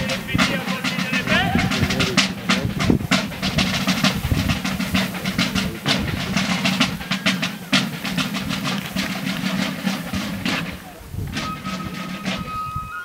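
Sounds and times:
military side drums beating: 0.0 - 13.0.

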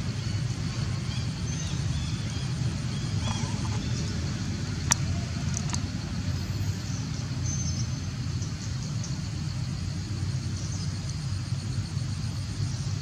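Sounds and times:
low outdoor rumble: 0.0 - 13.0
faint high clicks: 4.8 - 5.9.

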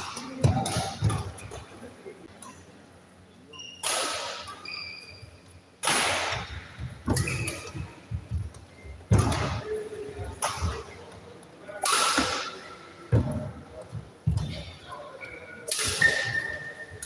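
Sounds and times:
racket striking shuttlecock: 0.0 - 1.5, 5.8 - 7.8, 11.8 - 12.6
shoes squeaking on court: 3.5 - 5.6, 6.8 - 9.7.

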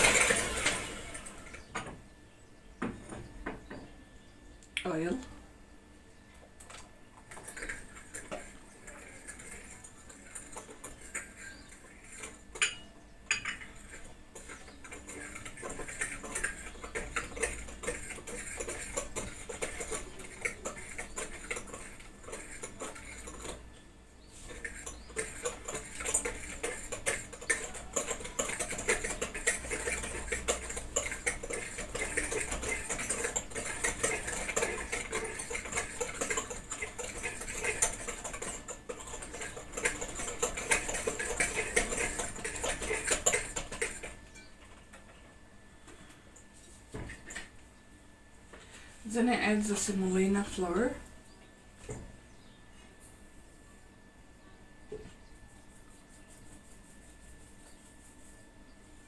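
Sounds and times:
electric hand mixer beaters rattling: 0.0 - 1.8, 6.5 - 45.1.

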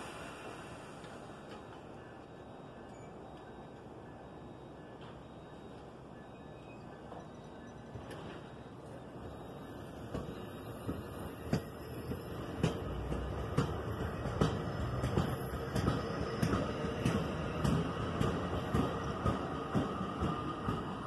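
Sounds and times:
train rumble: 0.0 - 2.6, 8.0 - 21.0
train wheels clacking over rail joints: 10.0 - 21.0.

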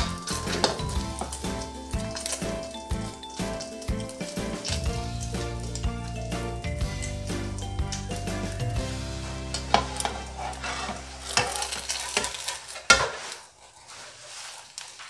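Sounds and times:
omelette sizzling in frying pan: 0.0 - 15.0
metal spatula scraping pan: 8.2 - 14.9.

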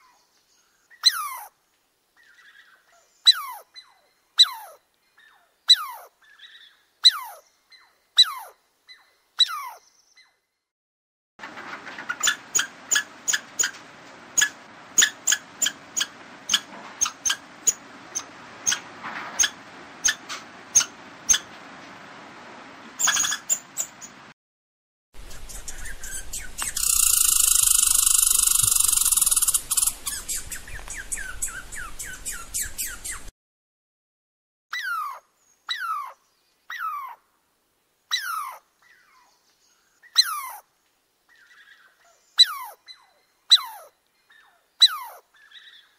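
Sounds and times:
sharp animal chirps: 14.4 - 18.8, 23.0 - 24.1, 25.2 - 33.3
falling whistled calls: 25.2 - 33.3.

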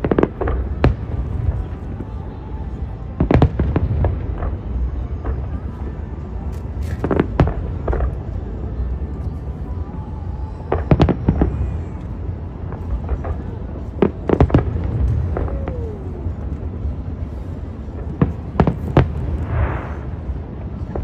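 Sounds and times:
fireworks bursting: 0.0 - 2.2, 10.5 - 21.0
steady low rumble: 0.0 - 21.0.

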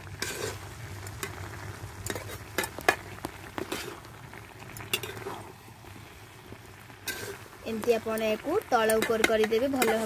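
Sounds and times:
food sizzling: 0.0 - 10.0
metal spatula scraping pan: 0.2 - 1.4, 4.9 - 5.4, 7.0 - 7.5.

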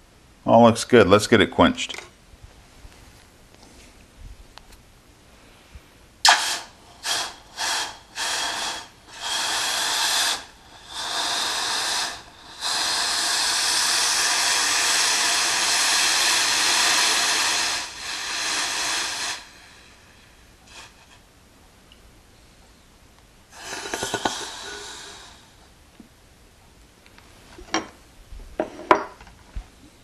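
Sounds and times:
steam hissing in bursts: 6.2 - 21.2, 23.5 - 25.6.

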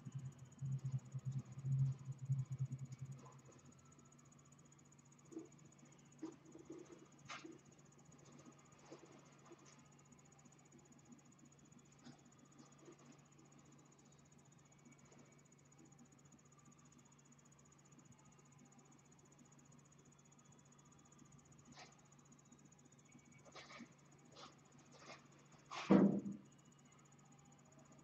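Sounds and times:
low hum: 0.0 - 6.9
faint high whine: 0.0 - 28.0.

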